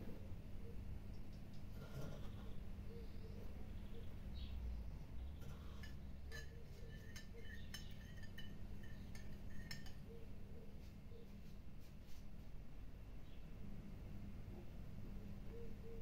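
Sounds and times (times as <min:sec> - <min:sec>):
metal spoon clinking glass bowl: 0:05.5 - 0:10.1.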